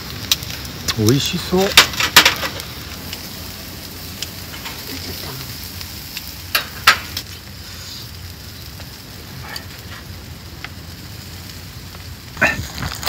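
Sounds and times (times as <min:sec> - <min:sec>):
meat sizzling on a grill: 0:00.0 - 0:13.0.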